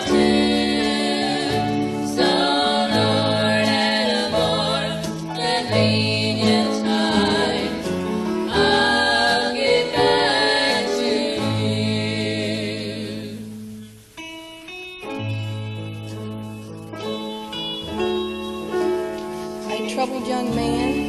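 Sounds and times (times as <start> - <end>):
gospel group singing in harmony: 0.0 - 13.8
plucked string instrument: 13.5 - 21.0.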